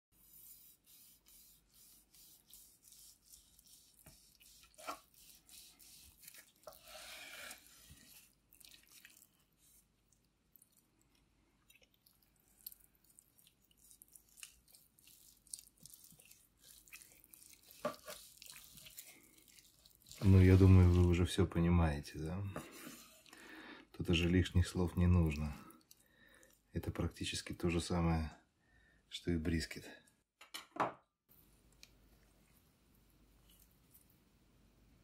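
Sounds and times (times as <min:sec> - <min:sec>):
knife slicing through meat: 0:00.2 - 0:09.9, 0:13.8 - 0:21.2.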